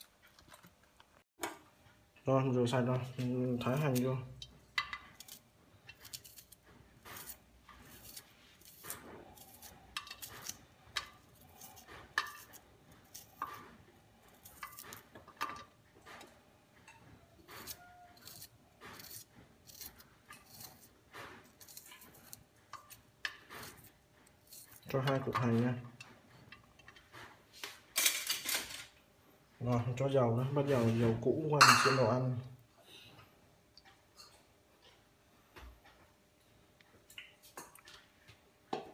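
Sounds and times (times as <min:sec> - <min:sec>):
knife slicing shallot: 0:03.6 - 0:04.1, 0:06.0 - 0:13.6.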